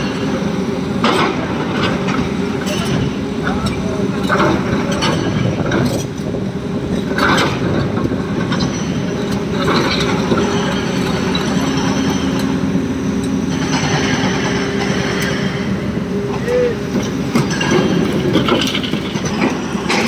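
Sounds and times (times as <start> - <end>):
heavy diesel machinery running: 0.0 - 20.0.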